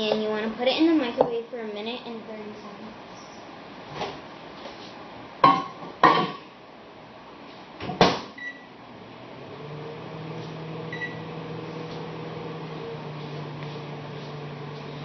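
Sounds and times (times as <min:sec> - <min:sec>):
microwave oven humming: 0:07.9 - 0:15.0.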